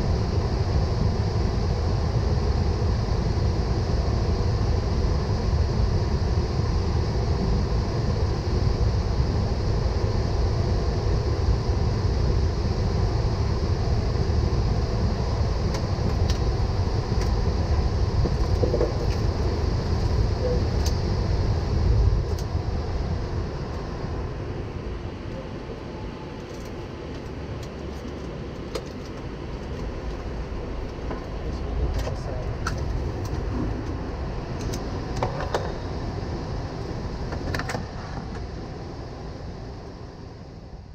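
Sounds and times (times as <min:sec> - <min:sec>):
cockpit rumble and air noise: 0:00.0 - 0:40.9.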